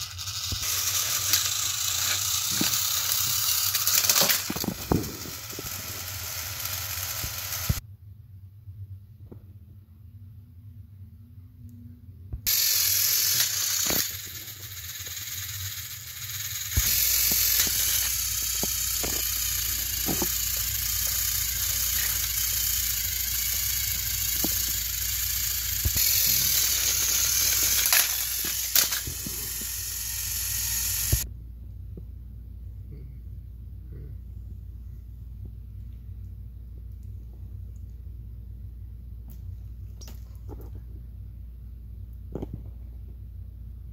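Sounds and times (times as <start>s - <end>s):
toy train motors ratcheting: 0.0s - 7.8s, 12.5s - 31.2s.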